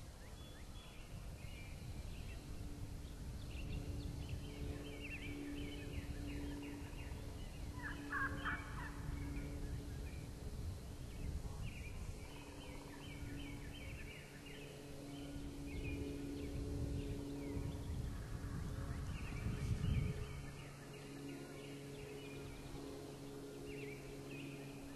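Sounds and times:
turkey gobbling: 7.8s - 9.0s.

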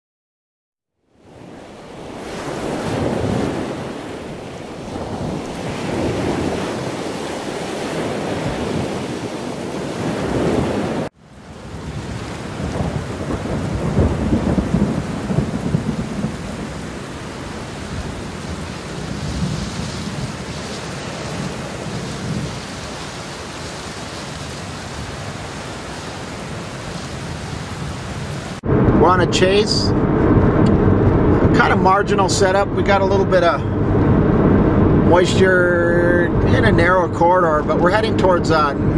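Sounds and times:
steady rain: 1.2s - 28.8s
thunder rumbling: 1.2s - 38.9s.

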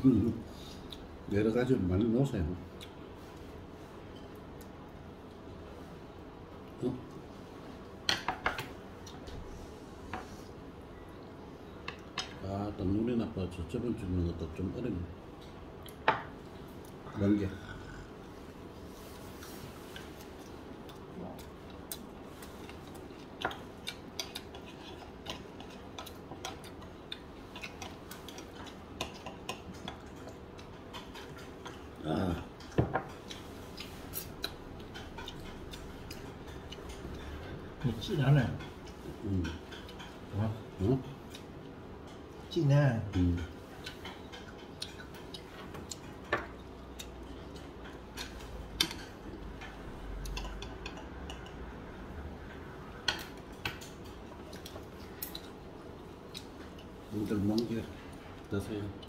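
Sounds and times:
low room hum: 0.0s - 59.0s
chopsticks clicking against dishes: 20.0s - 40.4s, 43.0s - 51.8s, 53.0s - 55.6s
chopsticks and dishes clicking: 37.8s - 40.2s, 43.1s - 51.7s.

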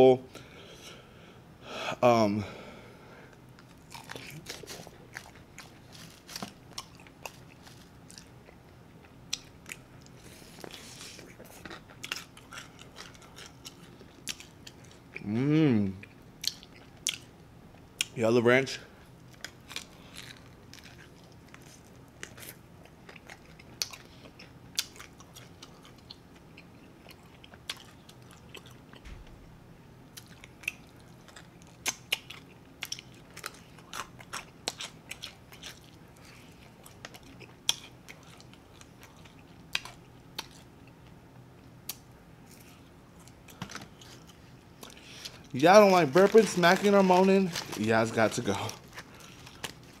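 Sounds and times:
chewing chicken wing: 3.6s - 17.3s, 19.3s - 29.3s, 30.1s - 41.1s.

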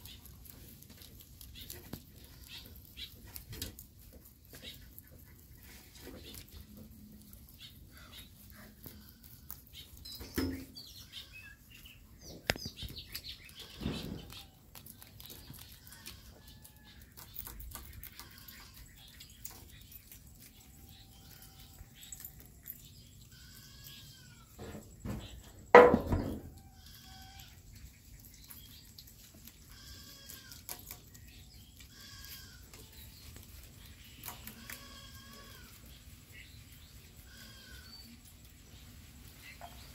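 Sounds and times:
rabbits chewing leaves: 0.0s - 39.9s
leaves rustling: 27.0s - 39.9s.

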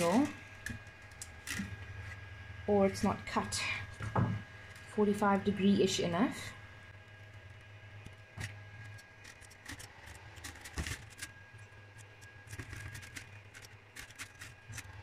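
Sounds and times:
printer humming: 0.0s - 15.0s
plastic filament clicks and scrapes: 7.4s - 15.0s.

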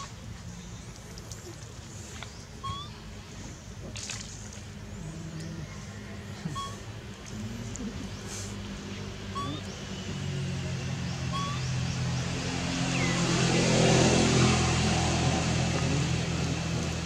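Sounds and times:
vehicle engine passing by: 3.5s - 17.0s.

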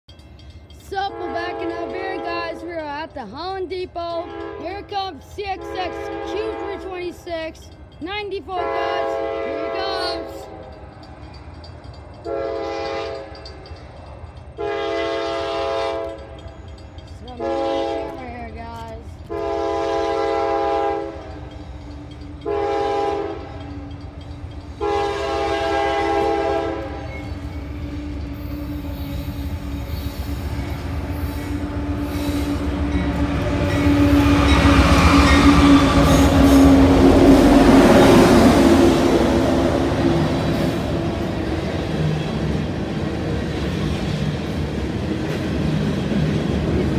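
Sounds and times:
locomotive engine and wheels rumbling: 0.1s - 46.9s
train horn blasts: 1.0s - 2.6s, 4.2s - 7.0s, 8.6s - 10.6s, 12.2s - 13.5s, 14.6s - 16.4s, 17.3s - 18.3s, 19.3s - 21.5s, 22.4s - 23.7s, 24.8s - 40.7s.

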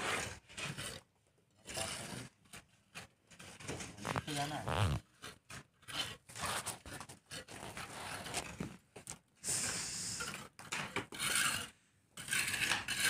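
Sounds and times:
trowel scraping mortar: 10.9s - 13.0s.

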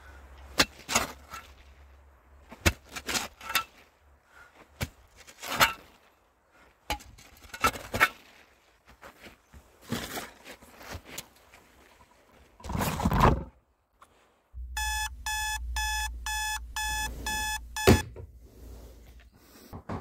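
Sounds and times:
radio alarm beeping: 14.6s - 18.0s
low hum: 14.6s - 18.6s.

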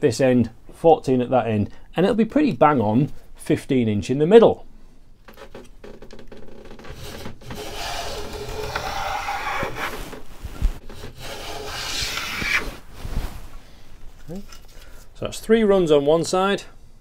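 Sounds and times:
hand plane rasping on wood: 6.9s - 10.2s, 10.8s - 12.8s.

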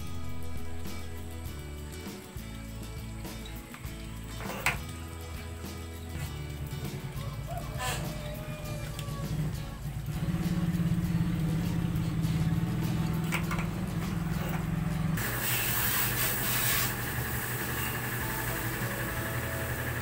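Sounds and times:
soldering gun humming: 14.1s - 20.0s.

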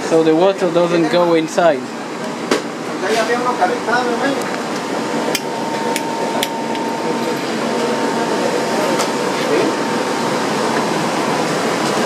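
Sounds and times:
thin constant hum: 2.8s - 12.0s
air noise: 4.5s - 12.0s
machinery drone: 4.6s - 12.0s.

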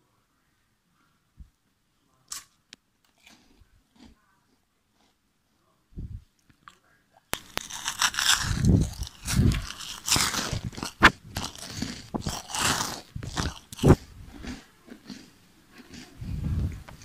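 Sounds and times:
wet mouth sucking and lip-smacking: 7.4s - 14.6s.

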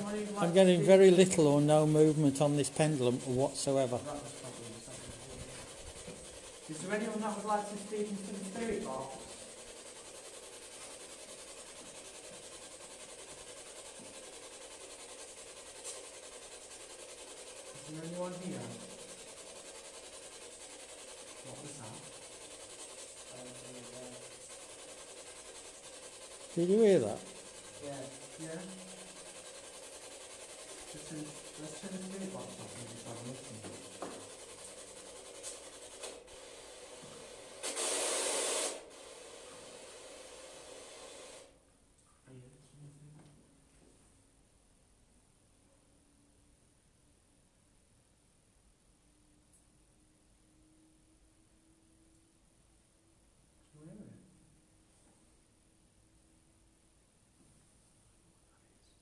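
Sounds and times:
pulsing radio static hiss: 0.0s - 13.2s, 16.1s - 41.5s
faint steady hiss: 19.9s - 59.0s
loud burst of rushing hiss: 30.7s - 41.6s.

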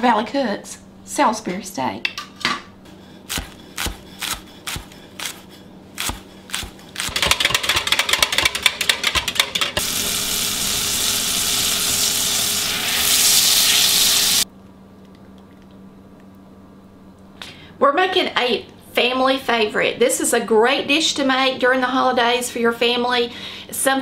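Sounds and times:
knife chopping on wooden board: 6.0s - 8.6s
whisk beating in glass cup: 6.5s - 9.7s
frying sizzle: 9.8s - 14.4s.

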